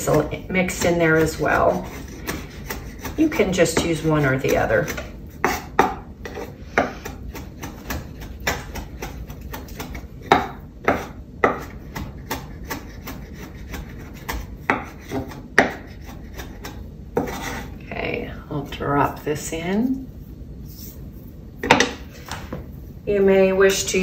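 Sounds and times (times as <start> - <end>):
knife chopping on wooden board: 0.0 - 17.6.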